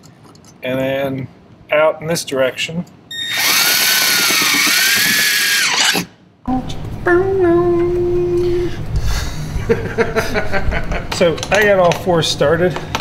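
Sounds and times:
cordless drill whining into plastic: 3.1 - 6.1
steady low tone: 6.5 - 10.7.

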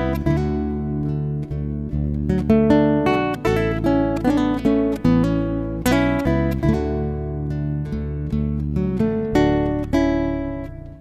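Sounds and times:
acoustic guitar plucked notes: 0.0 - 11.0.

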